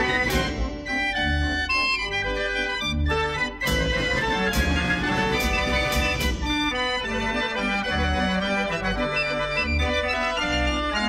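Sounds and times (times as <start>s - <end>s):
percussion crash: 0.0s - 1.4s, 3.6s - 7.0s
fairground organ playing: 0.0s - 11.0s.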